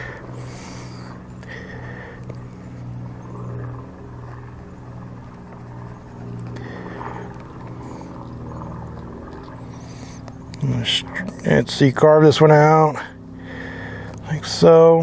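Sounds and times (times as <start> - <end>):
engine humming: 0.0 - 15.0.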